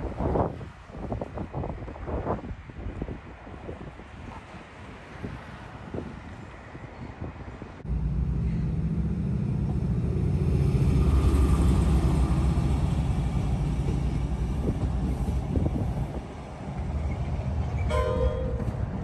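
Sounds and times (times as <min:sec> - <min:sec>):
diesel locomotive engine rumble: 0:00.0 - 0:19.0.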